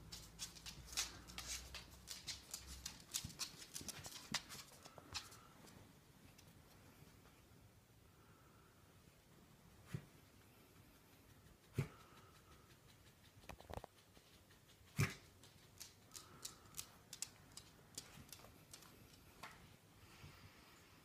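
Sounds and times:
puppy claws clicking and scuffling: 0:00.0 - 0:06.6, 0:10.4 - 0:19.7.

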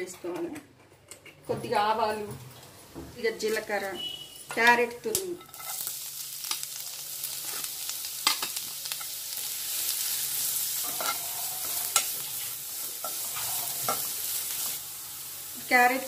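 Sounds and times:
carrot sizzling in hot oil: 0:03.5 - 0:16.0
metal spatula scraping pan: 0:10.8 - 0:14.3.

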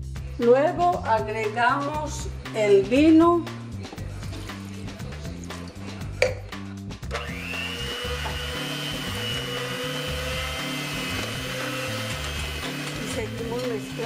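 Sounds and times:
electric hand mixer whining: 0:07.1 - 0:14.0.

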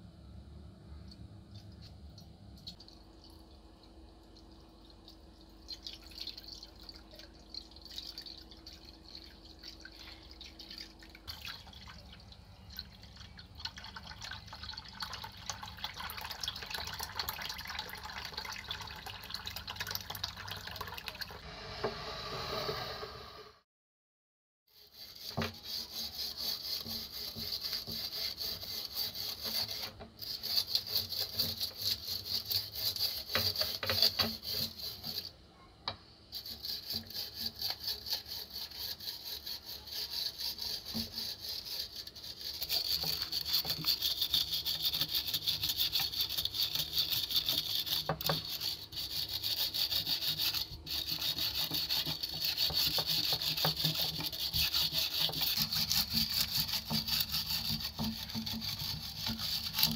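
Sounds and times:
wire brush scrubbing metal: 0:24.7 - 0:35.4, 0:36.3 - 0:59.9.

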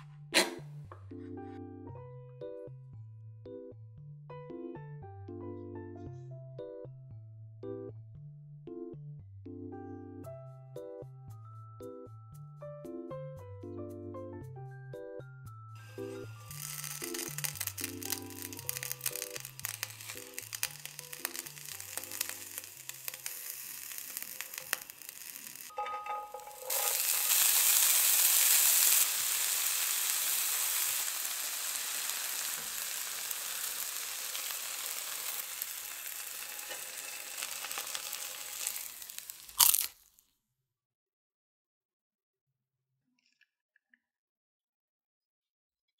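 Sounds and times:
food sizzling in a frying pan: 0:15.8 - 0:40.0.

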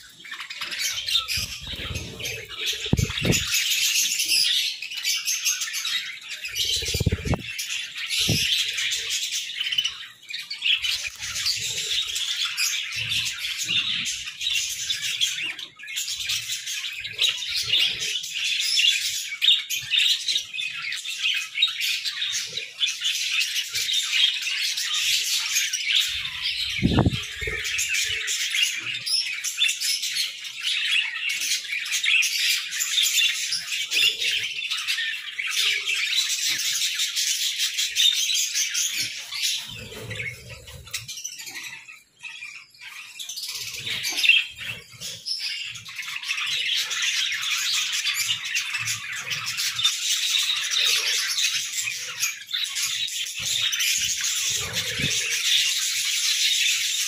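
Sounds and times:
budgerigars chirping: 0:00.3 - 0:32.4.

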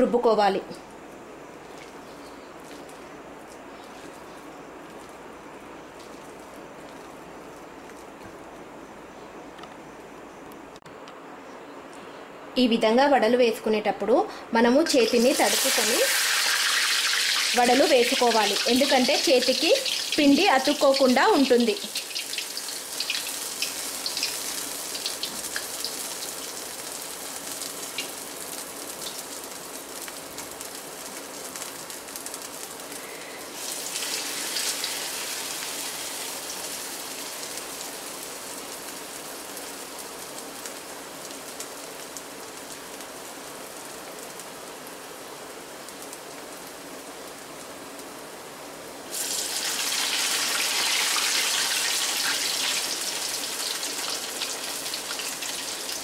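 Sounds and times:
fritters sizzling in hot oil: 0:14.8 - 0:48.1, 0:49.0 - 0:56.0.

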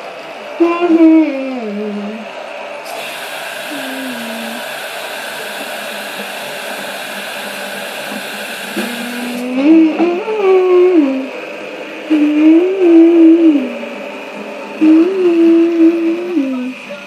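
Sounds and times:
steady hiss: 0:00.0 - 0:17.0
child humming: 0:00.6 - 0:02.3, 0:03.7 - 0:04.6, 0:08.8 - 0:11.4, 0:12.1 - 0:14.0, 0:14.8 - 0:17.0
electric toothbrush buzzing: 0:00.6 - 0:11.3, 0:12.1 - 0:17.0.

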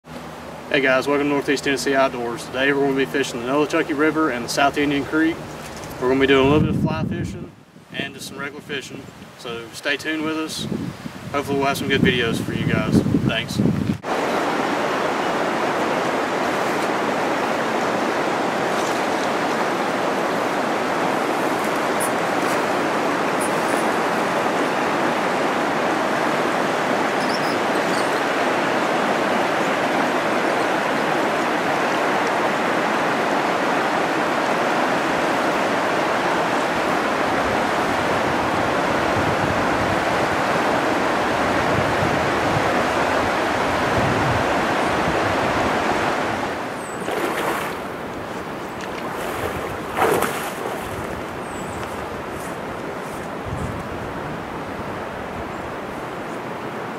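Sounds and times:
wind buffeting microphone: 0:05.3 - 0:08.3, 0:10.5 - 0:28.0, 0:36.7 - 0:55.6
river water rushing over rapids: 0:14.0 - 0:56.9.

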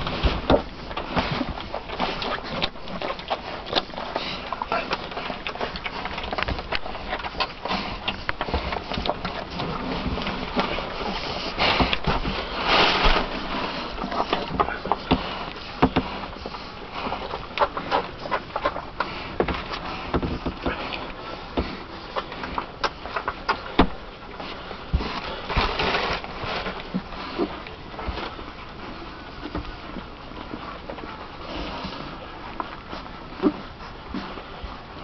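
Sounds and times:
puppies nursing and snuffling: 0:00.0 - 0:35.0
loud rustling rush: 0:09.6 - 0:14.0.

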